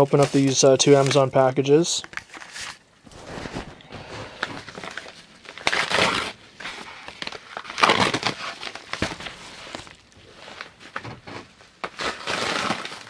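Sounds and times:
paper mailers crinkling and rustling: 0:00.0 - 0:13.0.

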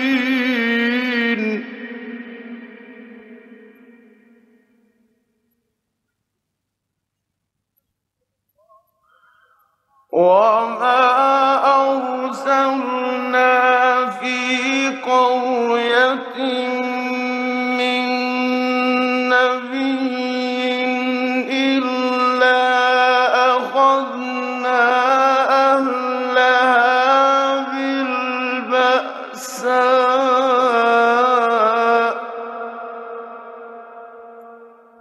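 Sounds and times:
man chanting melodically: 0:00.0 - 0:04.4, 0:08.6 - 0:35.0.

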